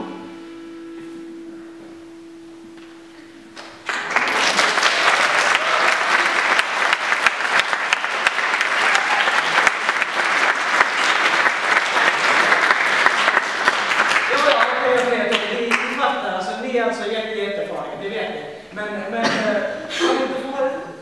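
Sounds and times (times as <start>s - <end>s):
audience applause: 3.6s - 16.0s.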